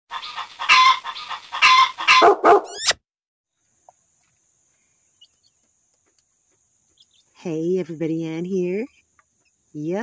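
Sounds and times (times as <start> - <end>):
dog barking: 2.1 - 2.9.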